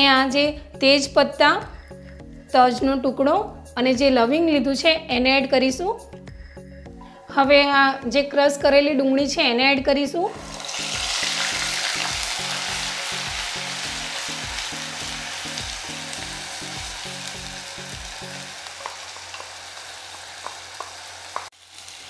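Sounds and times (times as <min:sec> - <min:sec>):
background music beat: 0:00.0 - 0:19.5
onion sizzling in hot oil: 0:10.3 - 0:22.0
spatula taps: 0:18.8 - 0:21.5.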